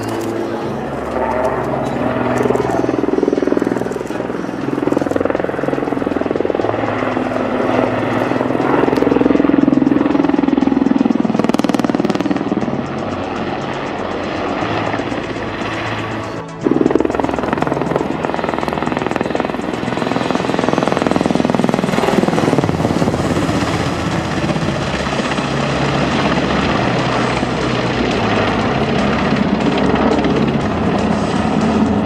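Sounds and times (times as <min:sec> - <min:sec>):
helicopter flying low: 0:00.0 - 0:32.0.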